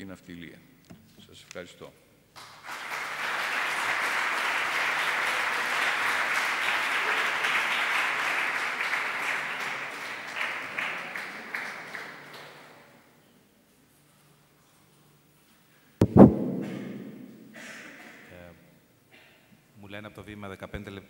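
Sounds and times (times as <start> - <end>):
audience applauding: 2.4 - 12.9.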